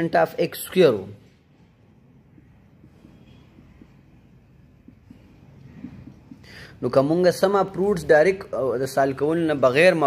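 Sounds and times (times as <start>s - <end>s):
low room hum: 0.8s - 9.7s
marker scratching on whiteboard: 1.2s - 7.5s.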